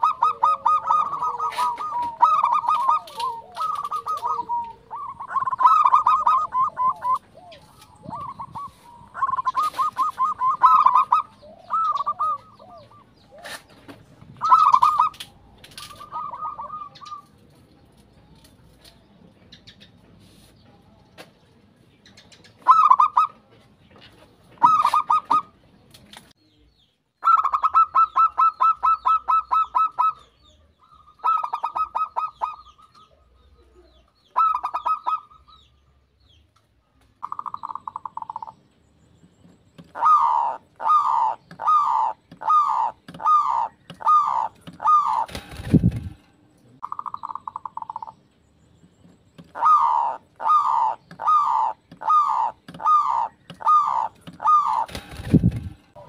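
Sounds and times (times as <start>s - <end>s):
doves cooing: 0.0s - 17.7s, 22.4s - 23.5s, 24.5s - 25.6s, 27.2s - 35.6s, 37.2s - 38.6s, 39.4s - 48.2s, 49.1s - 56.0s.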